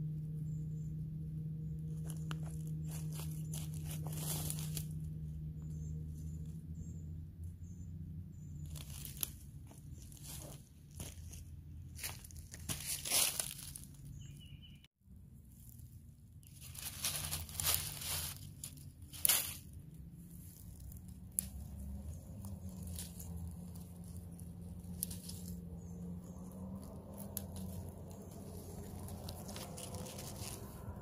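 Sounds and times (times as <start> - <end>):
leaves rustling and crackling: 1.9 - 5.1, 8.6 - 11.4, 12.0 - 14.3, 15.5 - 31.0
plant stems snapping: 20.6 - 25.6.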